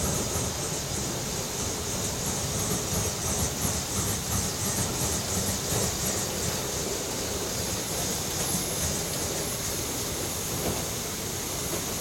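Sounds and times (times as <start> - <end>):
steam hissing: 0.0 - 12.0
steam locomotive exhaust chuffing: 0.0 - 12.0.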